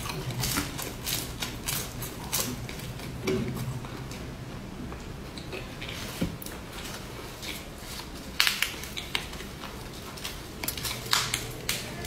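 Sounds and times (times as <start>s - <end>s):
lettuce leaves crinkling and snapping: 0.0s - 2.9s, 5.9s - 12.0s.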